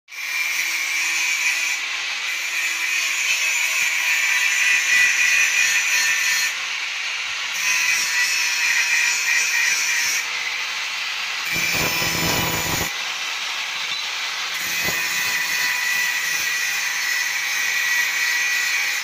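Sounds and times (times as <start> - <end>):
angle grinder cutting steel: 0.1 - 19.0.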